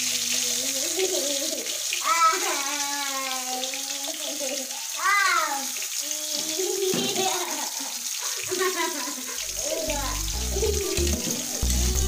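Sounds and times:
sung melody in background music: 9.8s - 12.0s.

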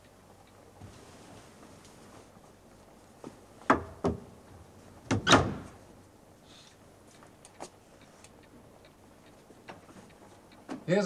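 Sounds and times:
wooden doors shutting: 5.0s - 5.8s.

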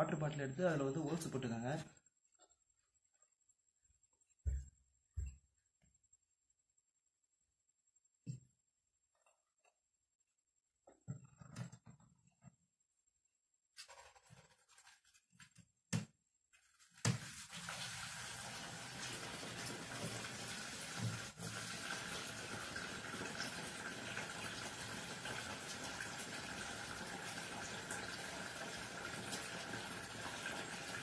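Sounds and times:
water pouring onto cloth: 17.2s - 31.0s.

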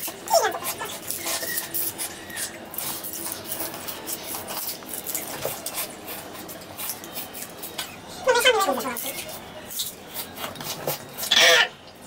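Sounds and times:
sugar cane crunching and tearing: 0.0s - 8.0s.

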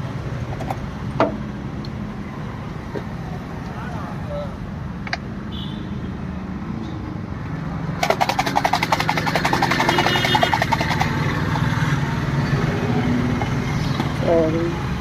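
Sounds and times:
traffic hum: 0.0s - 15.0s
ice cubes rattling in glasses: 8.0s - 11.2s.

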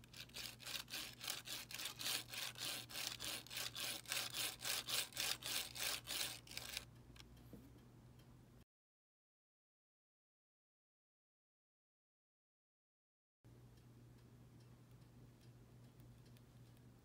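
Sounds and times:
model train gears rasping: 0.0s - 6.9s.

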